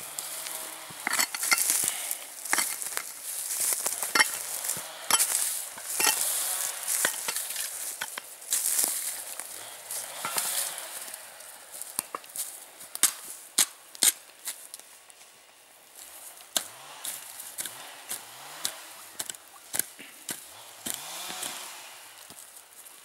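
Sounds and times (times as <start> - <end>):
rustling and scraping of litter: 0.0 - 12.7
hand tools chopping soil: 0.1 - 11.2, 11.8 - 14.7, 16.0 - 22.5.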